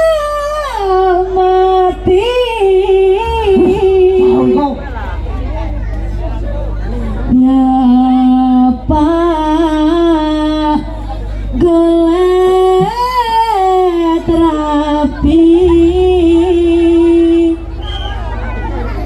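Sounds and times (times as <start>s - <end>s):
person singing: 1.0s - 4.8s.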